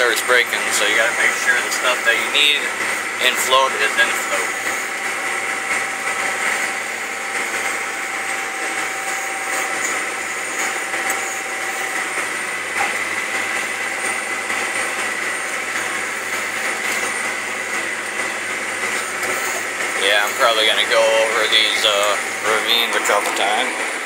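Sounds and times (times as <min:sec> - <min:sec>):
faint steady whine: 0:00.0 - 0:24.0
tractor engine droning: 0:00.0 - 0:24.0.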